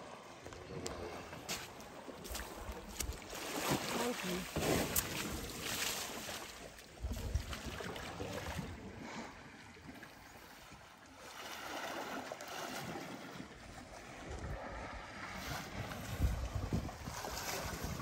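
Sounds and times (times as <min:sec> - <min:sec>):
water sloshing and splashing: 0:00.0 - 0:18.0
wind rumbling on microphone: 0:04.6 - 0:09.5, 0:13.6 - 0:18.0.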